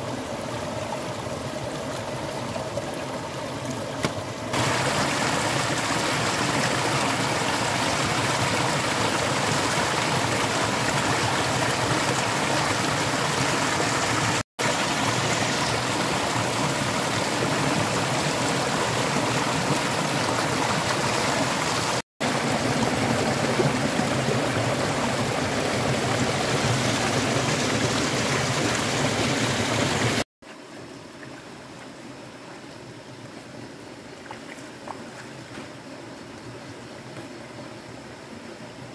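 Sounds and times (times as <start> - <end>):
rocky stream rushing: 0.4 - 30.2.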